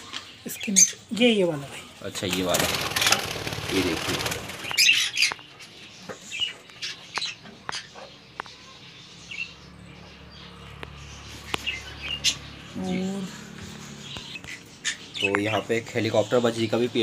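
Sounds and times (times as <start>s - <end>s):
budgerigars chirping: 0.3s - 17.0s
wing-flapping: 2.3s - 4.9s.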